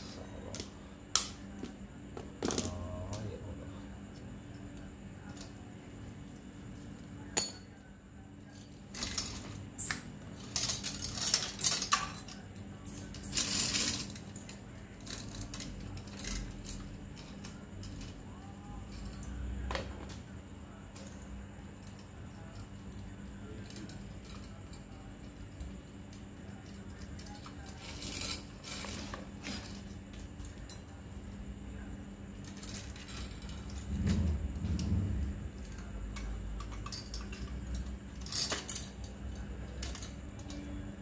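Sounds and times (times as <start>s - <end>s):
metal clicks and clinks: 35.6s - 40.7s.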